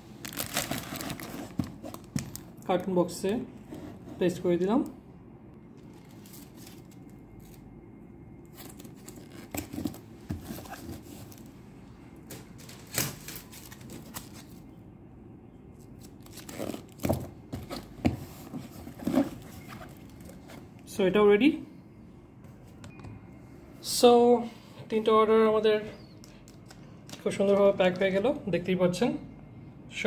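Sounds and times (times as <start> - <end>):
packaging rustling: 0.2 - 2.6, 5.8 - 7.6, 8.4 - 11.5, 12.2 - 14.6.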